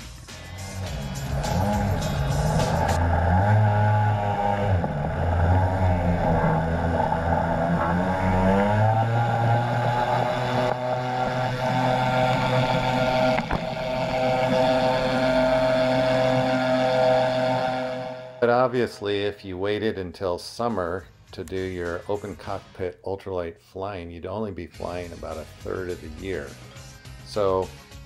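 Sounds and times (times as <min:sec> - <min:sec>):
aircraft engine and propeller: 0:03.9 - 0:18.4.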